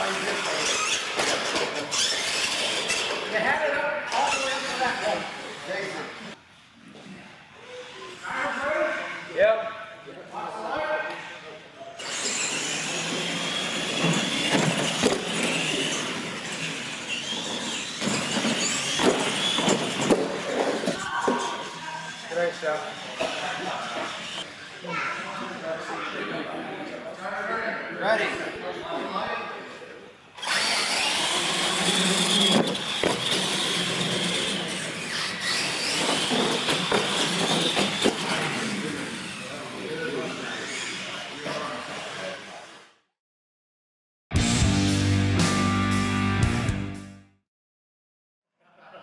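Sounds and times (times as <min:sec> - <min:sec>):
toy truck motors whining: 0:00.0 - 0:03.4, 0:04.1 - 0:06.4, 0:12.0 - 0:24.8, 0:30.4 - 0:43.0
toy trucks knocking on ramps: 0:35.6 - 0:38.3.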